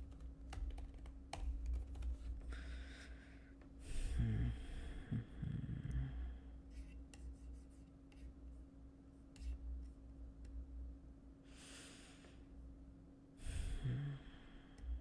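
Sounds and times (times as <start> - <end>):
faint steady hum: 0.0 - 15.0
breathing close to microphone: 2.4 - 6.6, 13.4 - 15.0.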